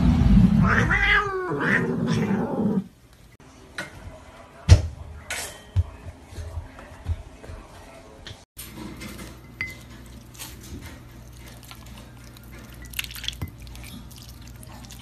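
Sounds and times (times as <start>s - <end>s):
cat meowing: 0.6s - 2.8s.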